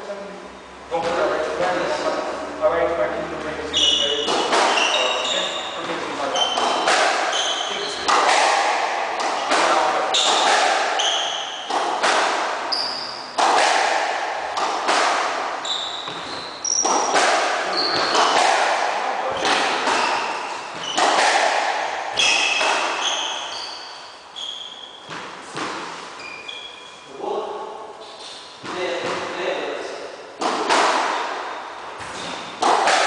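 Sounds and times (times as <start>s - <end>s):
shoes squeaking on wooden floor: 3.7s - 8.2s, 12.7s - 13.3s, 15.6s - 18.5s, 19.3s - 21.3s, 22.1s - 27.1s
squash ball hitting walls: 3.8s - 23.5s, 25.0s - 26.1s, 30.4s - 33.0s.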